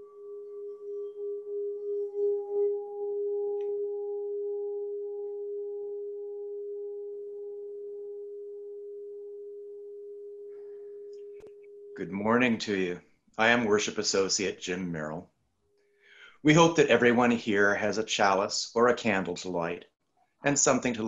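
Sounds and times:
singing bowl ringing: 0:00.0 - 0:12.1.

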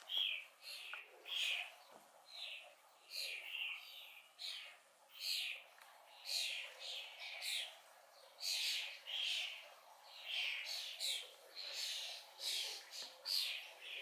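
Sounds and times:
fledglings begging calls: 0:00.0 - 0:07.8.

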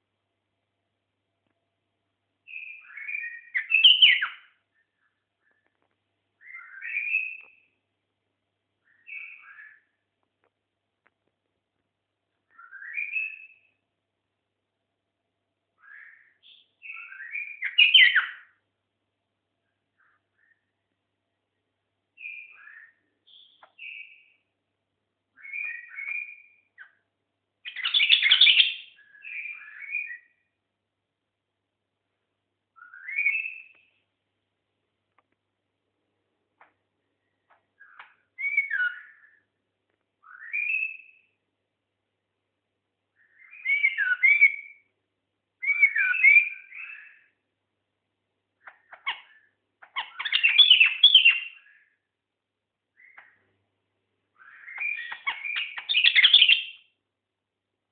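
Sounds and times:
bird singing whistled phrases: 0:02.5 - 0:04.5, 0:06.4 - 0:07.7, 0:08.9 - 0:09.8, 0:12.5 - 0:13.7, 0:15.8 - 0:18.5, 0:22.2 - 0:24.4, 0:25.4 - 0:27.0, 0:27.7 - 0:30.4, 0:32.8 - 0:33.9, 0:37.8 - 0:39.4, 0:40.2 - 0:41.3, 0:43.2 - 0:44.9, 0:45.6 - 0:47.3, 0:50.0 - 0:51.8, 0:54.4 - 0:56.9.

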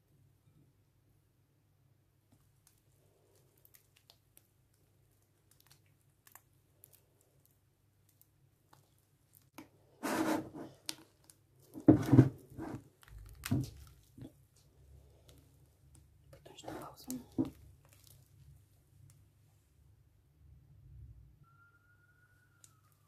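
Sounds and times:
wet slime squishes: 0:02.2 - 0:19.5.

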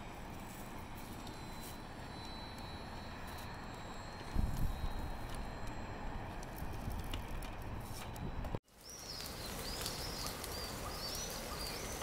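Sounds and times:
outdoor background noise: 0:00.0 - 0:12.0
birds chirping: 0:08.7 - 0:12.0.

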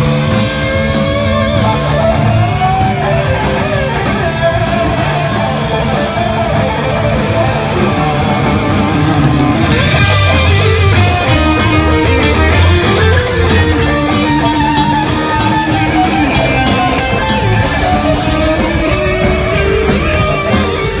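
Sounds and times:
heavy metal band playing: 0:00.0 - 0:21.0.

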